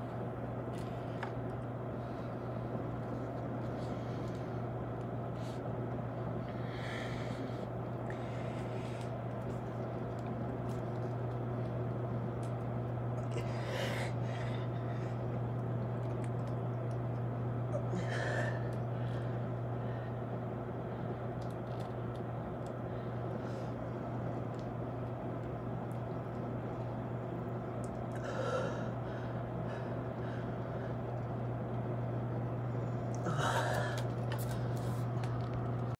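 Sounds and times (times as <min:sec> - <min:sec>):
steady low hum: 0:00.0 - 0:35.9
man breathing heavily: 0:06.4 - 0:09.2, 0:13.2 - 0:15.3, 0:28.1 - 0:31.1, 0:33.2 - 0:35.0.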